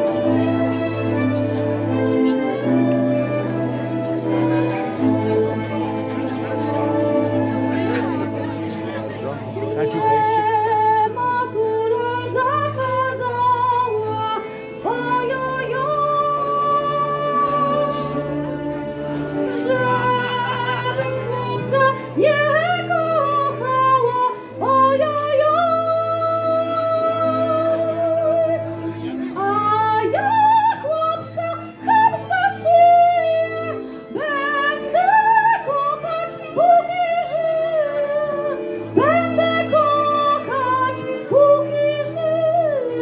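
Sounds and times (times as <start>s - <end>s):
woman singing with vibrato: 9.8s - 43.0s.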